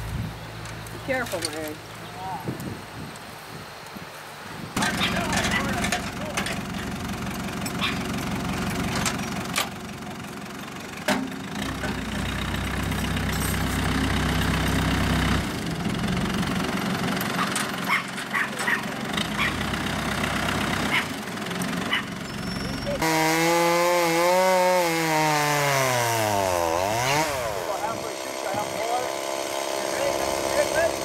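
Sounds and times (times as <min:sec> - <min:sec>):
backhoe engine idling: 0:04.8 - 0:23.0.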